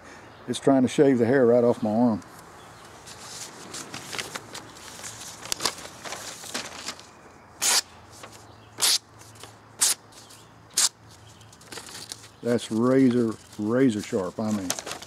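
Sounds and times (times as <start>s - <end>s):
paper rustling: 3.0s - 7.1s, 7.7s - 9.6s, 11.1s - 15.0s
knife cutting paper: 7.6s - 7.9s.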